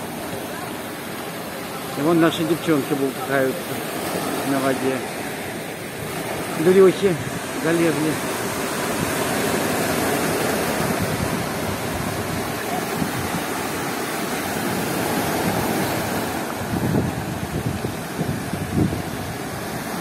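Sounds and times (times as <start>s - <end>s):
surf breaking on rock shore: 0.0s - 20.0s
wind rumbling on microphone: 5.9s - 20.0s.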